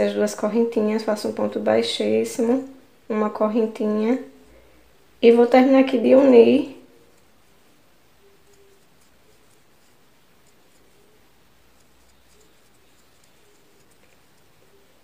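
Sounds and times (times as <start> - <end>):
crochet hook scratching thread: 7.0 - 15.0.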